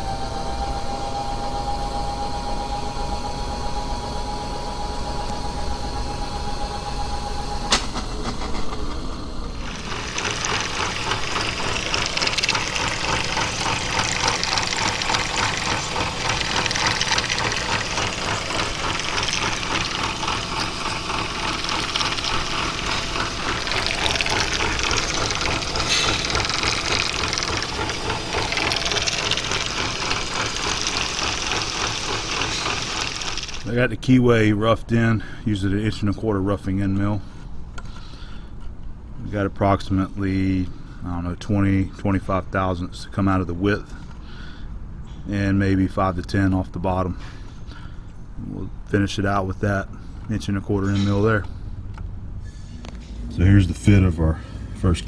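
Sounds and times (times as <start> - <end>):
low machine hum: 0.0 - 55.0
milling machine cutting metal: 9.5 - 33.7.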